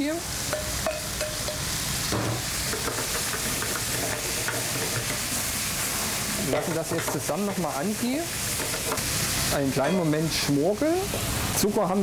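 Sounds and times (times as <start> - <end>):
vegetables sizzling in oil: 0.0 - 12.0
spatula scraping a pan: 0.6 - 5.5.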